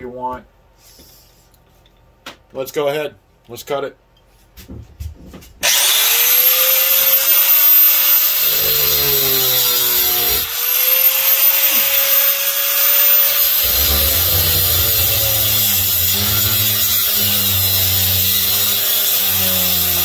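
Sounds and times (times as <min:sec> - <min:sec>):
angle grinder cutting metal: 0:05.6 - 0:20.0.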